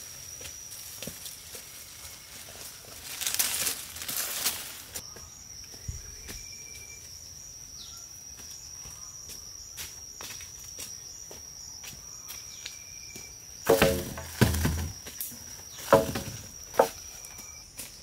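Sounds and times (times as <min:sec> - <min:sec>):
faint footsteps on soil: 0:00.0 - 0:07.2, 0:08.3 - 0:18.0
high-pitched insect drone: 0:00.0 - 0:18.0
wooden pole dropped on ground: 0:13.6 - 0:17.1.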